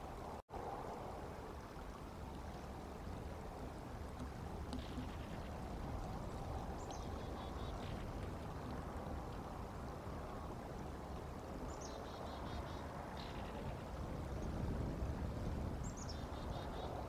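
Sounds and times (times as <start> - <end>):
outdoor rumble and hiss: 0.0 - 17.0.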